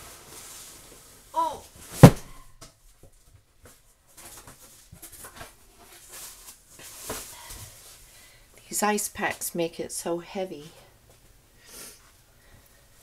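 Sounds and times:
cardboard box thumping: 1.9 - 2.5.

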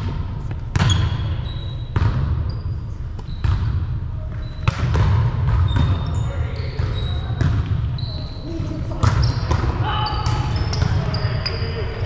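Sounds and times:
volleyballs hitting gym floor: 0.0 - 2.5, 3.1 - 7.9, 8.9 - 11.2
sneaker squeaks: 0.4 - 12.0
players' voices: 5.9 - 12.0.

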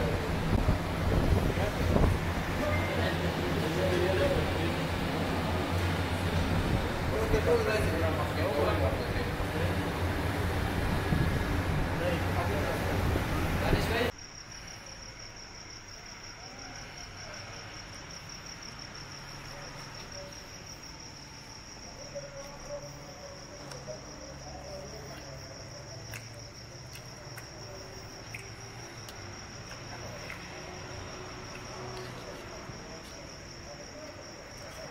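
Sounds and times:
high-pitched insect trill: 1.7 - 4.7, 14.0 - 34.9.

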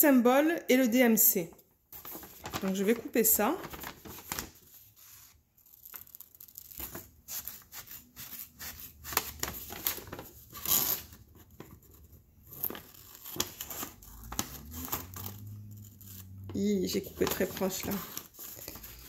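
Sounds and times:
paper crinkling: 1.9 - 19.0.

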